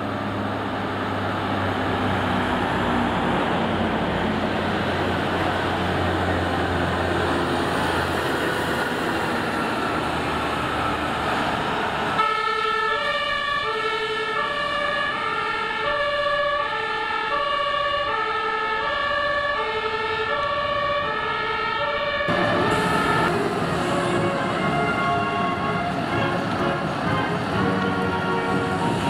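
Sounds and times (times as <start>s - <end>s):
heavy diesel truck driving past: 0.0s - 15.8s, 20.6s - 29.0s
two-tone emergency siren: 6.4s - 29.0s.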